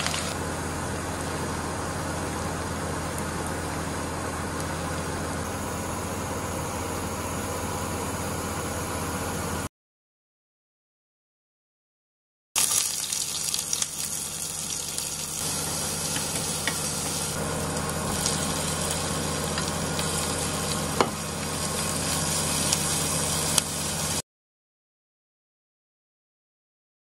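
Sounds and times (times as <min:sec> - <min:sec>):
meat and onions sizzling: 0:00.0 - 0:05.8, 0:12.6 - 0:24.2
spatula knocking on pan: 0:15.6 - 0:17.2, 0:21.0 - 0:21.2.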